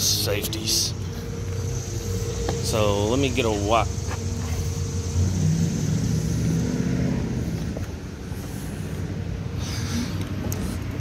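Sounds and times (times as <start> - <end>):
faint low drone: 0.0 - 11.0
low background rumble: 0.0 - 11.0.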